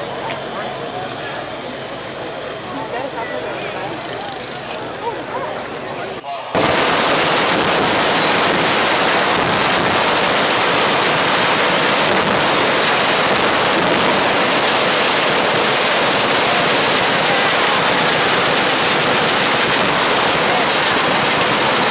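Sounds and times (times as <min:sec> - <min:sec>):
massed machine-gun fire: 0:06.6 - 0:21.9.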